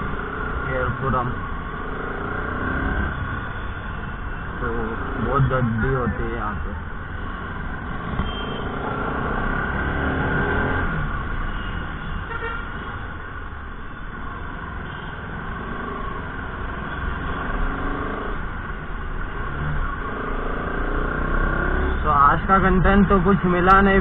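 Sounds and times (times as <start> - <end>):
vehicle horns honking: 8.2 - 8.8, 11.5 - 12.9.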